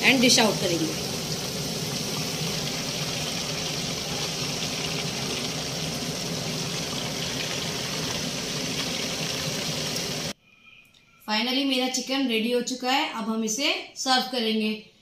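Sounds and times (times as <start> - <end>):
hot oil sizzling: 0.0 - 10.4.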